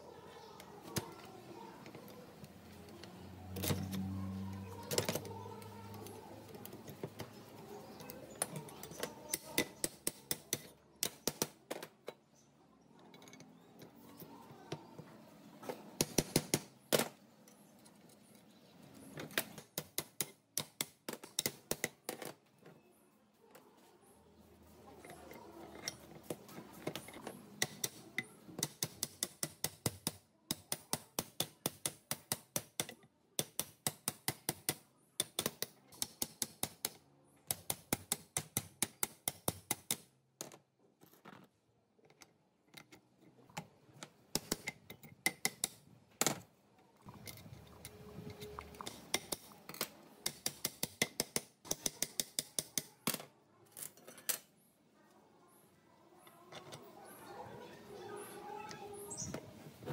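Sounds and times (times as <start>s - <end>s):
metal parts tapping and clicking: 16.0s - 22.4s, 24.9s - 41.4s, 42.0s - 46.4s, 47.1s - 54.5s.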